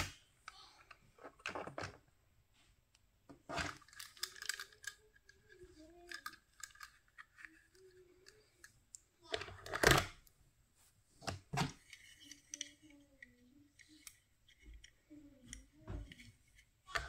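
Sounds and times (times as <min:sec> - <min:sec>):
toy cars clicking against case: 0:03.6 - 0:08.7.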